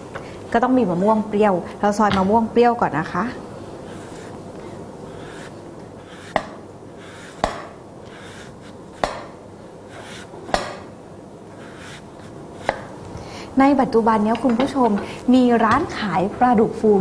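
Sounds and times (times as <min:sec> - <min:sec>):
knife slicing mango: 0:05.1 - 0:10.8, 0:11.6 - 0:12.9.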